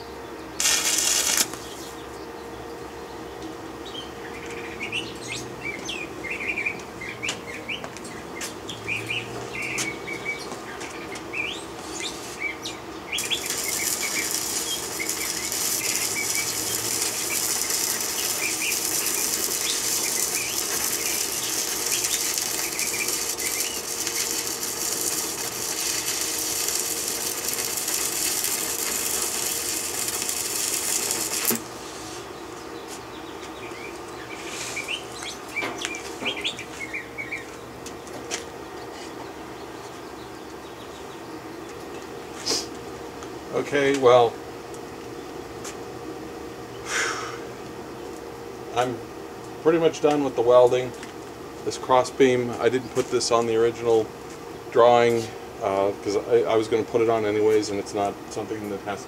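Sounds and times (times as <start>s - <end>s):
welding arc crackling and sizzling: 0.6s - 2.0s, 9.3s - 32.3s
birds chirping: 1.5s - 43.4s.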